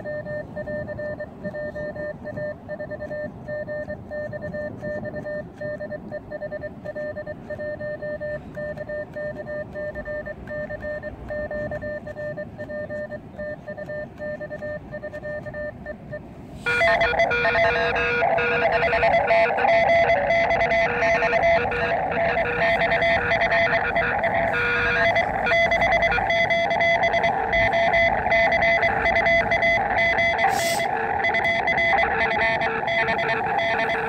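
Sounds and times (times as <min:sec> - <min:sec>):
morse code beeps: 0:00.0 - 0:34.0.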